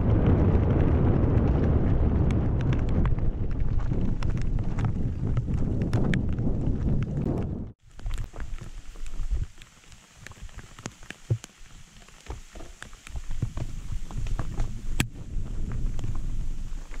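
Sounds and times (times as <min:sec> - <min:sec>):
low rumble: 0:00.0 - 0:07.8, 0:13.5 - 0:17.0
bike tyres crunching over stones: 0:00.0 - 0:17.0.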